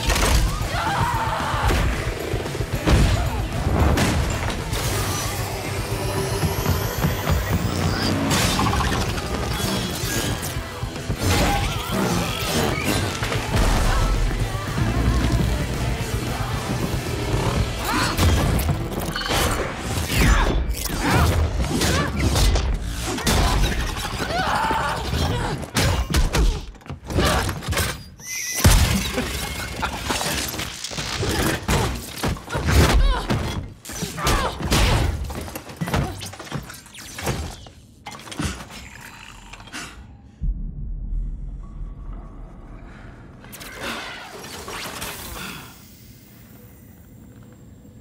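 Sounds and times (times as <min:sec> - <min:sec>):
low rumble: 0:40.3 - 0:43.5.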